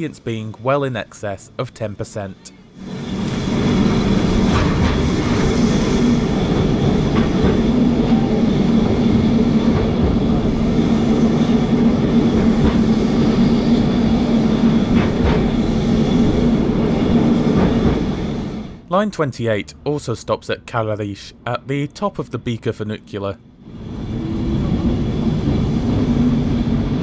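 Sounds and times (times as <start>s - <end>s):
tram electric motor hum: 2.4s - 18.9s, 23.4s - 27.0s
wheels rumbling on rails: 2.6s - 18.9s, 23.6s - 27.0s.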